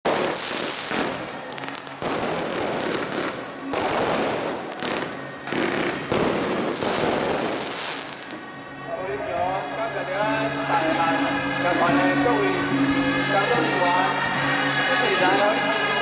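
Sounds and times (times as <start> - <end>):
fireworks crackling and popping: 0.0 - 8.5.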